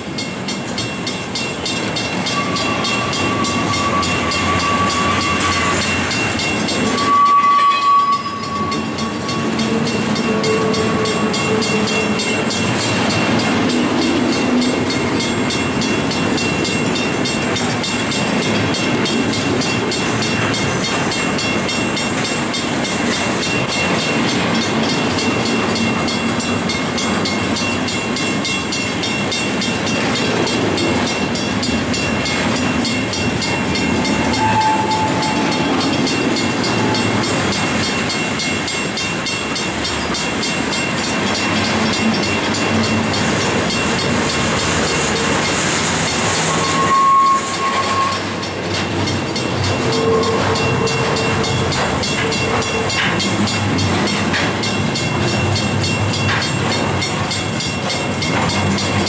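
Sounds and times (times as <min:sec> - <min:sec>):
freight train wheels rumbling: 0:00.0 - 0:59.0
faint high squeal: 0:02.3 - 0:06.0, 0:06.9 - 0:09.4, 0:46.5 - 0:48.3.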